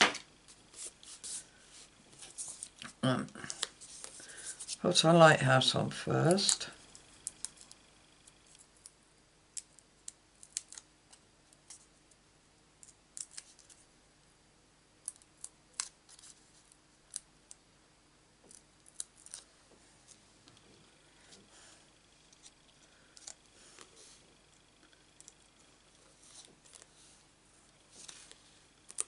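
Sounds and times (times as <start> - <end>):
adhesive dots being peeled: 6.3 - 11.9, 12.8 - 13.8, 15.0 - 17.6, 18.4 - 20.2, 28.0 - 29.0.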